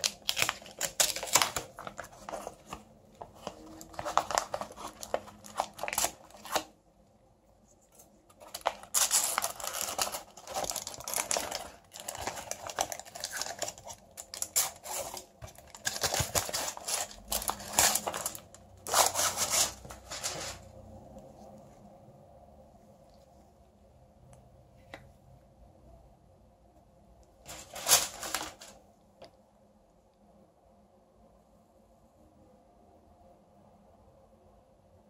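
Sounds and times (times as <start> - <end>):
foil and paper wrapper crinkling: 0.0 - 6.7, 8.3 - 20.6, 27.5 - 28.8.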